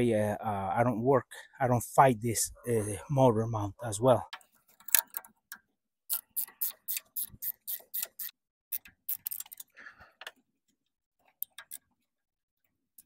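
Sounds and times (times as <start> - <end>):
ratcheting wrench clicking: 6.1 - 9.7, 11.4 - 11.9.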